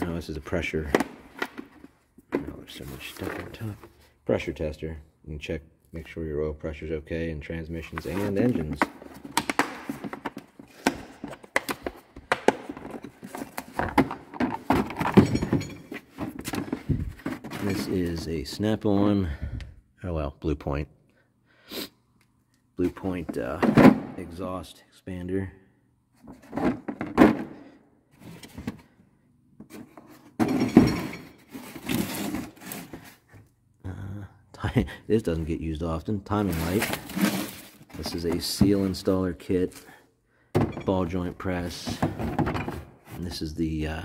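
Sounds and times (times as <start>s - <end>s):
plastic cases clunking and rattling: 0.8s - 4.0s, 7.9s - 18.2s, 23.1s - 24.2s, 26.2s - 29.0s, 29.6s - 33.4s, 36.4s - 39.1s, 40.5s - 43.2s
rubbing and scraping: 7.8s - 11.4s, 15.8s - 18.3s, 36.3s - 38.8s.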